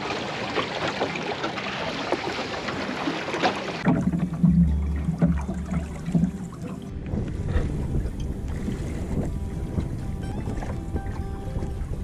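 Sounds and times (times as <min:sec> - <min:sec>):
water washing along hull: 0:00.0 - 0:12.0
wind rumbling on microphone: 0:06.0 - 0:12.0.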